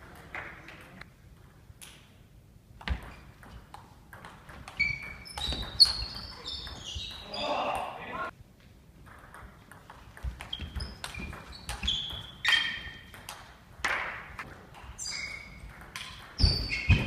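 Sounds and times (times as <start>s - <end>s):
short high squeaks: 4.8s - 7.3s, 10.4s - 13.1s, 15.0s - 15.6s.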